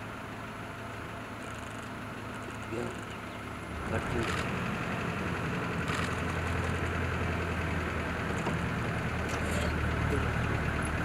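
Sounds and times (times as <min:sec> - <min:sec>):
jeep engine idling: 0:00.0 - 0:11.0.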